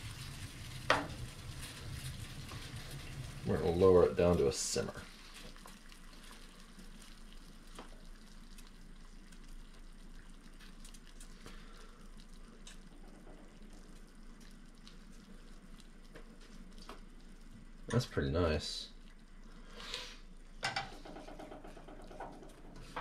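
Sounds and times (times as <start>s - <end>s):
pot of water bubbling: 0.0s - 23.0s.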